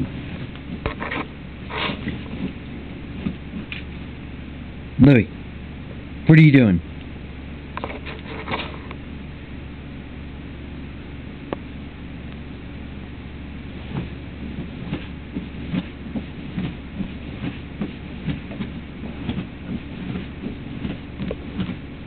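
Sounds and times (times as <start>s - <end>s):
puppy scratching at fabric: 0.0s - 4.0s, 7.8s - 8.9s, 13.7s - 22.0s
steady low hum: 0.0s - 22.0s.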